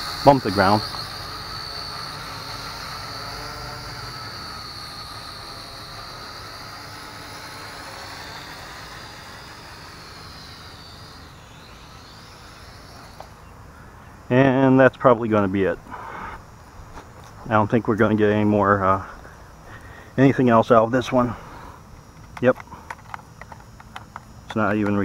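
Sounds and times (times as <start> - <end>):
toy drone propellers whining: 0.0 - 14.7, 20.7 - 25.0.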